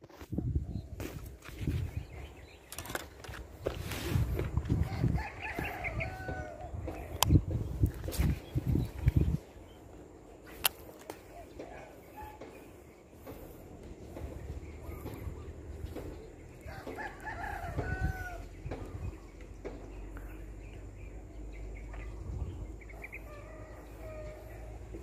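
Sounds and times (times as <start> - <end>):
rooster crowing: 4.8 - 6.7, 16.6 - 18.6.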